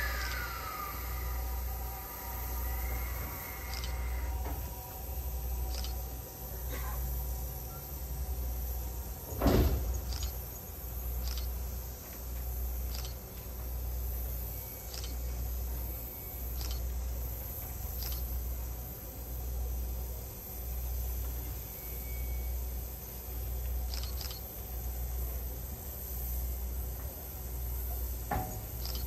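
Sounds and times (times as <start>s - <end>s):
low pulsing machinery: 0.0s - 29.0s
short clicks: 5.7s - 6.0s, 11.2s - 11.5s, 12.9s - 13.2s, 14.9s - 15.2s, 23.9s - 24.4s, 28.8s - 29.0s.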